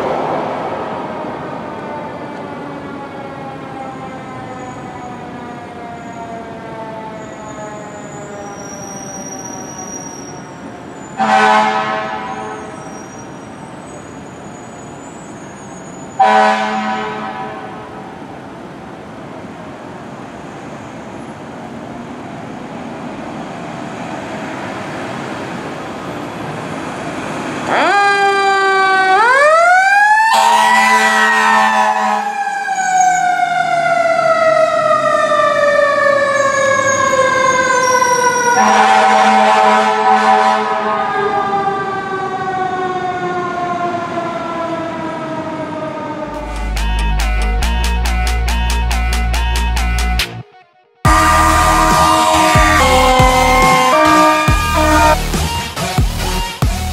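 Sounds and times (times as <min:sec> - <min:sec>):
fire engine siren: 0:00.0 - 0:19.1, 0:23.9 - 0:47.7, 0:50.3 - 0:55.8
fire engine air horns: 0:11.1 - 0:13.7, 0:16.2 - 0:18.0, 0:27.7 - 0:33.0, 0:36.4 - 0:41.7, 0:51.1 - 0:55.7.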